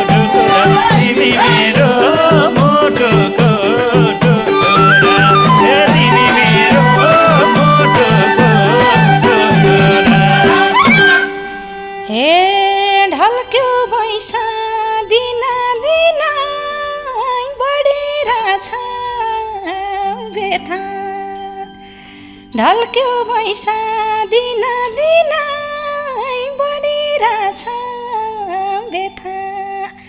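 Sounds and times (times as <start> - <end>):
drum beat: 0.0 - 11.3
folk music melody: 0.0 - 15.6
sliding bending melody notes: 0.0 - 23.5.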